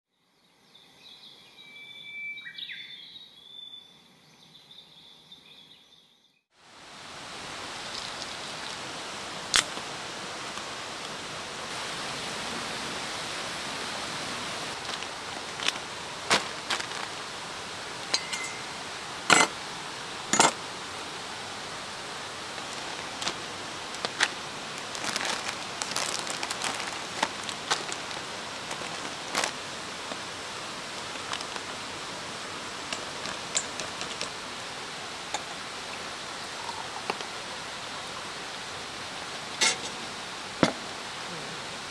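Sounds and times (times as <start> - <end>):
background hiss: 0.2 - 41.9
cooking gear clicking and clinking: 18.1 - 18.7, 32.9 - 34.4
spoon in metal bowl: 18.1 - 18.7.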